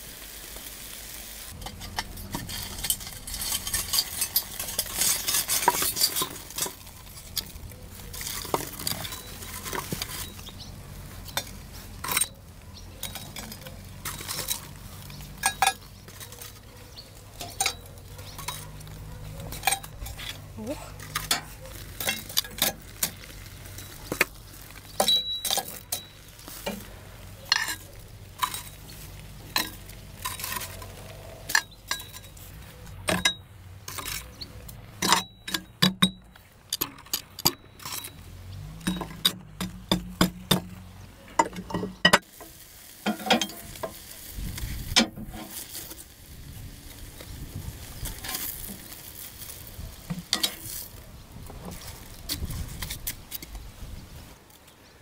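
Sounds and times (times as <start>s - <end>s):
metal tongs clinking on iron: 1.6s - 10.6s, 11.3s - 24.0s, 25.0s - 38.2s, 43.0s - 44.0s, 50.2s - 50.8s.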